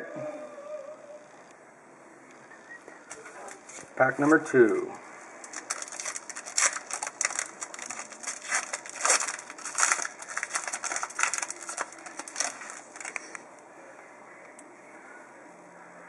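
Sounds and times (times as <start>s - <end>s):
foil wrapper tearing and crinkling: 5.4s - 13.4s.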